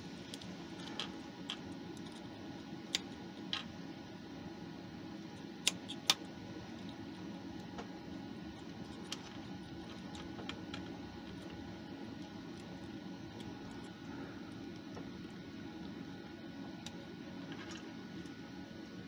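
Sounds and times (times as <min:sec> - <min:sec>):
low background hum: 0:00.0 - 0:19.0
soldering iron and wires clicking: 0:05.6 - 0:07.9.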